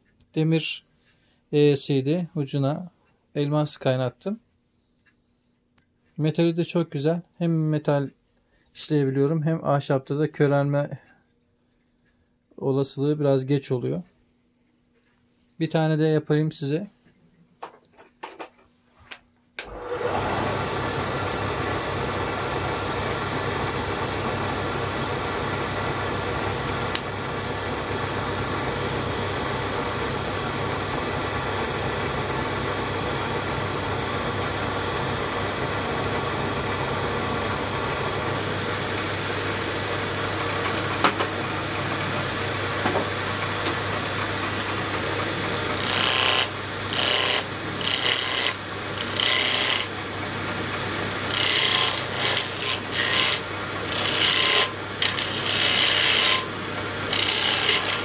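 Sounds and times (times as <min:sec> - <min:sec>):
wood lathe motor humming: 0:19.6 - 0:58.0
turning tool scraping wood: 0:44.6 - 0:50.1, 0:51.2 - 0:58.0.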